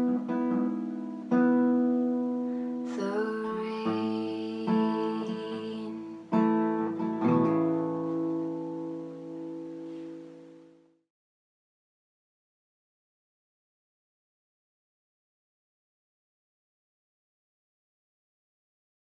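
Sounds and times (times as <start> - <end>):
acoustic guitar strummed chords: 0.0 - 11.0.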